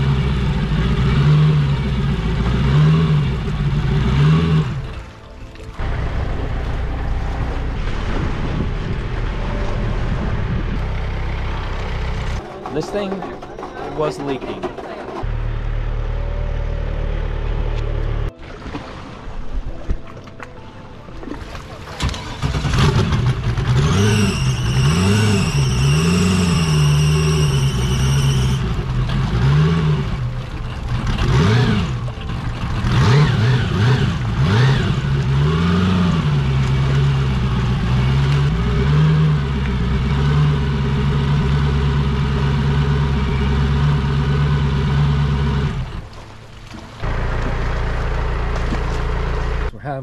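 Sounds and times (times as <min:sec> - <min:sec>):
jet ski engine revving: 0:00.0 - 0:05.1, 0:22.0 - 0:46.1, 0:47.0 - 0:49.7
high whine: 0:23.7 - 0:29.1.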